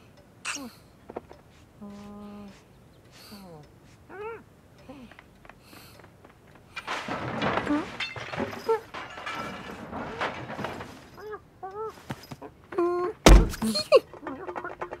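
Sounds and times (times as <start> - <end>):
cartoon rustling and bumping: 13.2 - 13.9.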